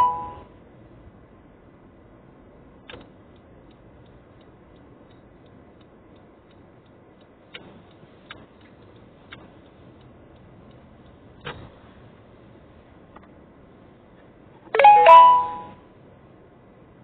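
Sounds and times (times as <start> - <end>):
faint regular ticking: 2.3 - 14.2.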